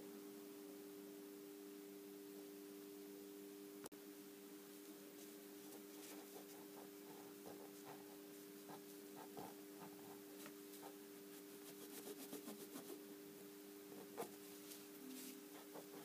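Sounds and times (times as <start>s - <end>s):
low electrical hum: 0.0s - 16.0s
cotton swab scratching fingernail: 5.7s - 11.0s, 11.6s - 13.0s, 15.5s - 16.0s.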